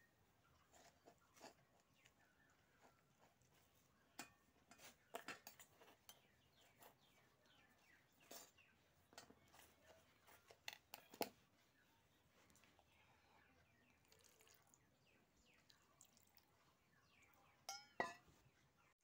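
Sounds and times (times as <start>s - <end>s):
metal spoons clinking on bowls: 4.2s - 6.7s, 17.6s - 18.3s.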